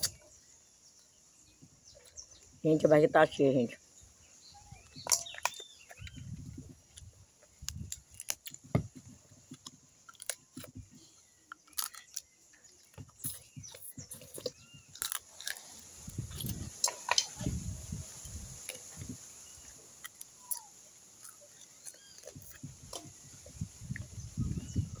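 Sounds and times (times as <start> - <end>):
crab shell cracking: 7.6 - 8.6, 9.6 - 10.7, 11.4 - 17.4, 20.0 - 23.0
chewing: 9.6 - 17.1, 18.2 - 23.0.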